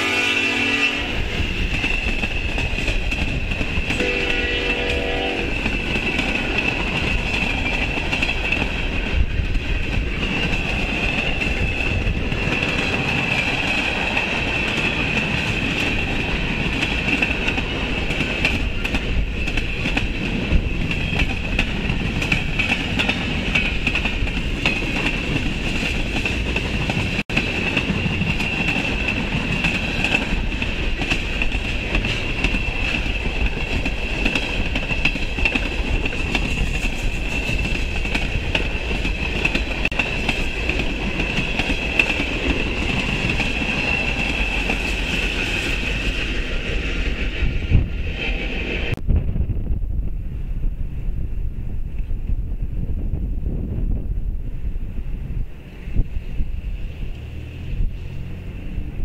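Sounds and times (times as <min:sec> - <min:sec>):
train horn: 0:00.0 - 0:01.9, 0:03.9 - 0:06.1
high ringing of rails: 0:00.0 - 0:49.0
train wheels clickety-clack: 0:00.0 - 0:49.0.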